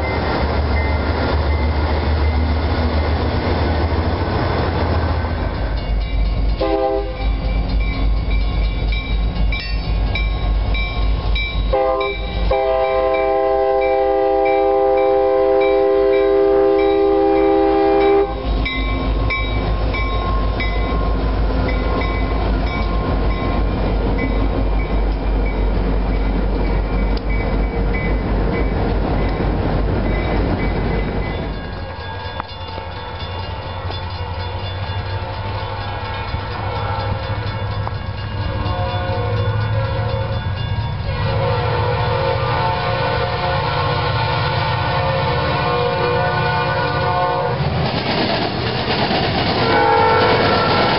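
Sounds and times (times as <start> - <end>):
freight cars rumbling past: 0.0 - 11.7
wheels squeaking on rails: 0.0 - 12.5, 16.8 - 41.2
train horn blasts: 6.6 - 7.4, 11.7 - 18.6, 35.1 - 37.5, 38.6 - 40.4, 41.0 - 47.6, 49.6 - 50.9.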